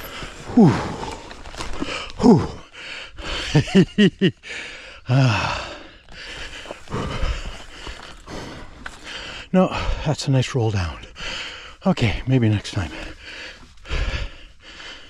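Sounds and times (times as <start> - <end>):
mountain bike on dirt trail: 0.0 - 3.7, 5.4 - 9.9
rider grunting and gasping: 0.0 - 10.1.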